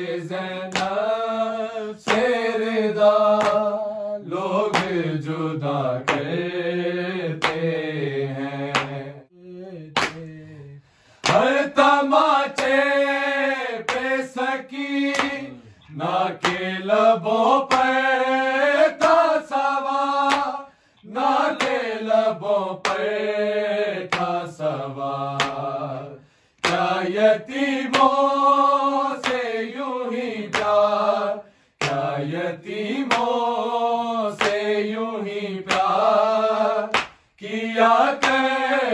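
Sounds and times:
sharp rhythmic beats: 0.0 - 5.2, 6.0 - 6.6, 8.6 - 9.1, 11.2 - 22.0, 25.2 - 26.0, 26.6 - 29.5, 30.4 - 32.3, 35.6 - 38.9
men chanting a lament: 0.0 - 38.9.

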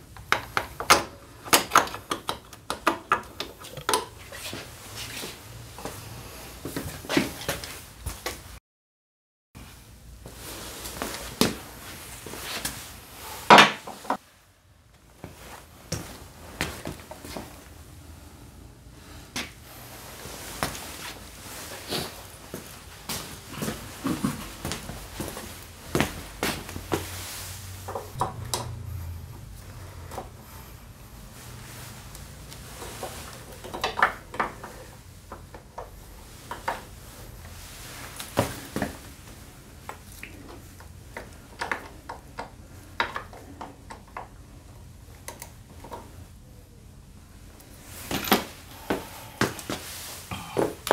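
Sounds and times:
footsteps: 19.4 - 33.5.

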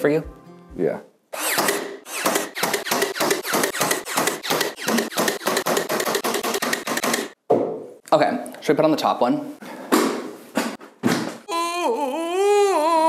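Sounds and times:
nail gun shots into wood: 1.5 - 7.4.

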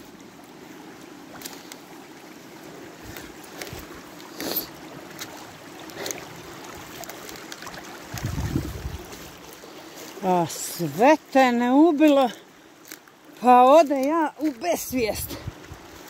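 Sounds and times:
stream water over rock: 0.0 - 16.0
footsteps and twigs cracking: 1.3 - 1.9, 3.0 - 10.3, 11.9 - 15.0.

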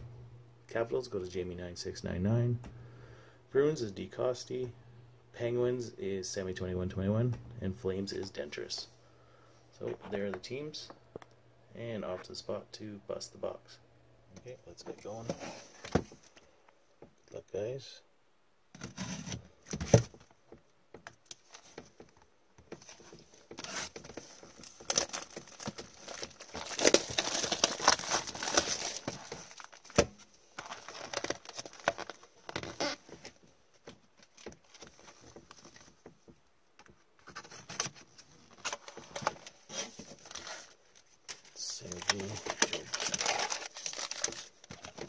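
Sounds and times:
plastic wrap crinkling and tearing: 22.9 - 33.2, 37.4 - 45.0
knife slitting plastic wrap: 24.9 - 29.9.

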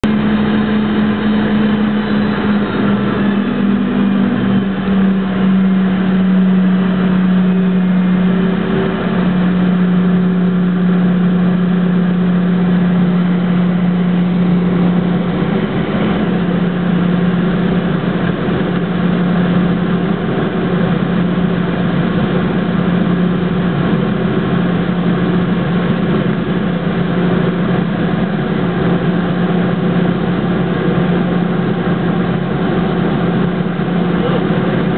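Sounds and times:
jet engines droning in cabin: 0.0 - 34.9.

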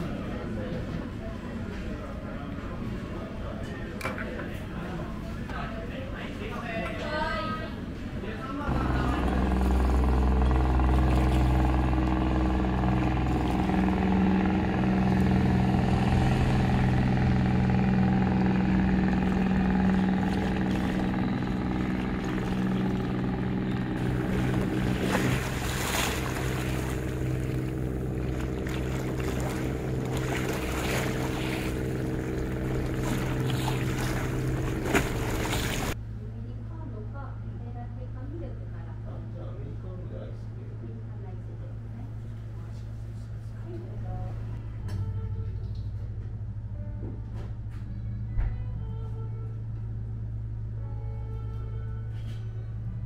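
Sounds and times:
motorboat engine humming: 7.8 - 36.5, 41.6 - 53.0
water splashing: 8.7 - 36.0.

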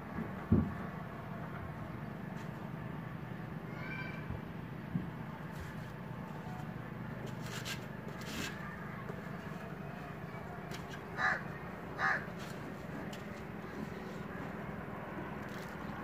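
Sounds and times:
low background hum: 0.0 - 16.0
crow cawing: 11.2 - 12.3.

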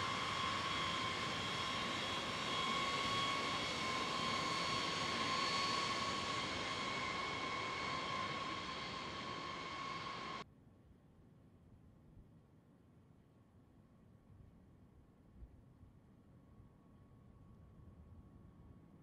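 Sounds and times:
jet engines rushing and whining: 0.0 - 10.4.

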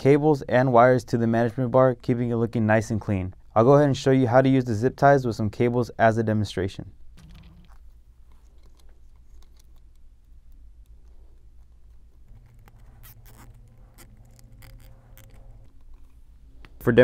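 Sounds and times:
low steady hum: 0.0 - 17.0
zip tie scratching and clicking: 7.3 - 16.3.

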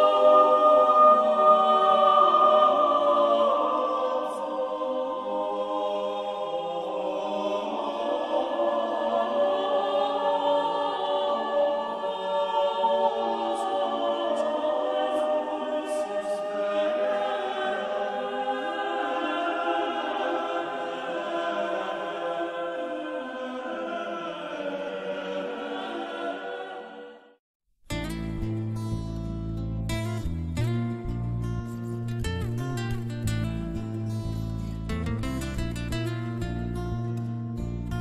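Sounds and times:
choir singing sustained chords: 0.0 - 27.4.

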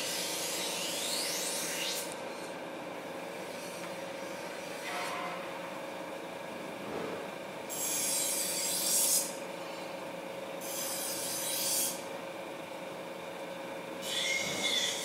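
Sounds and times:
knife blade scraping on grinder: 7.7 - 9.4, 10.6 - 12.1, 14.0 - 15.0.

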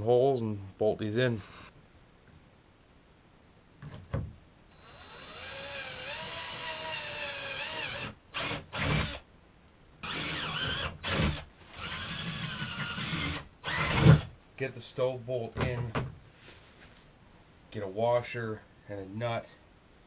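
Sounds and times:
cordless drill motor whine: 4.7 - 9.2.

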